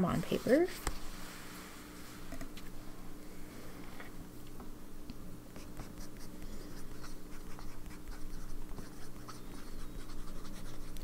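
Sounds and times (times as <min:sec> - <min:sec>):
fountain pen scratching on paper: 0:05.6 - 0:11.0.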